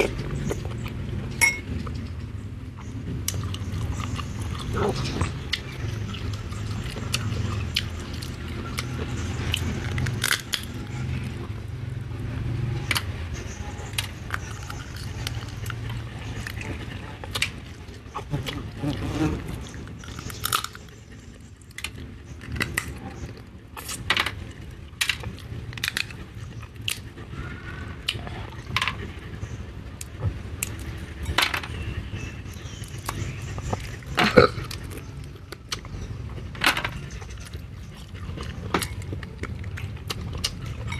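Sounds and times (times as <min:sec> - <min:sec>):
person chewing food: 0:02.8 - 0:11.6, 0:13.9 - 0:24.0, 0:37.2 - 0:40.9.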